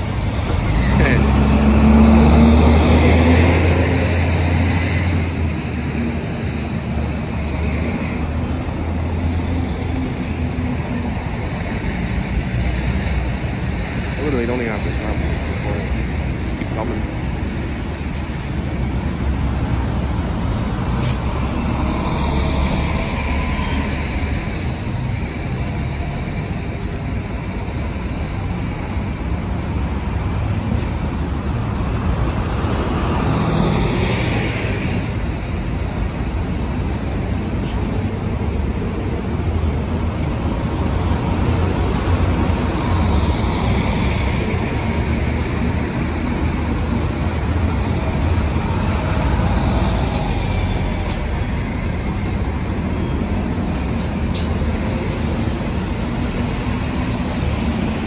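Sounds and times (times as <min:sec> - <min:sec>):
buses driving past: 0:00.0 - 0:58.0
traffic noise: 0:00.0 - 0:58.0.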